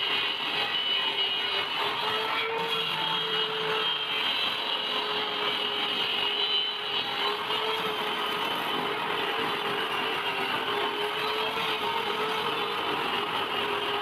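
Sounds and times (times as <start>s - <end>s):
table saw cutting wood: 0.0s - 14.0s.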